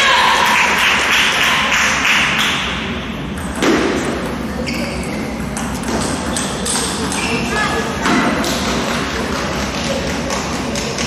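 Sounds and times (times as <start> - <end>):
sports hall noise: 0.0 - 11.0
table tennis balls clicking: 5.3 - 7.5, 8.4 - 11.0.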